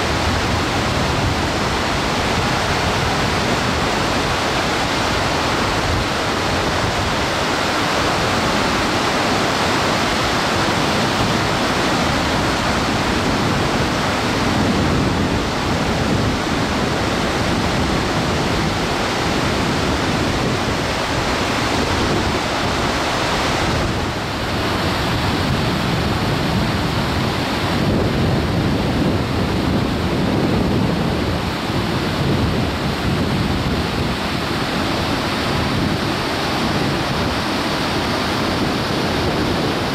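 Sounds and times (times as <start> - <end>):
river rapids rushing over rocks: 0.0 - 39.9.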